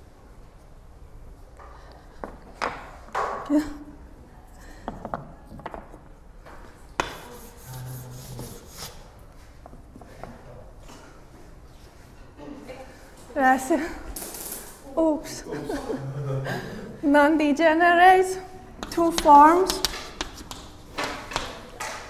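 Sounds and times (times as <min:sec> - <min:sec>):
chalk scraping on chalkboard: 0:07.0 - 0:09.1.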